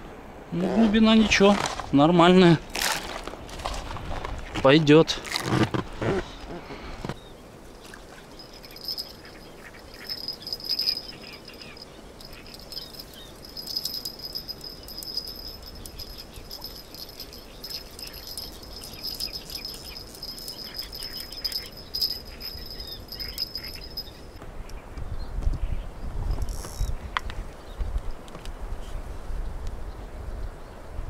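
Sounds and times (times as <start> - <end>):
insect trilling: 8.3 - 24.4.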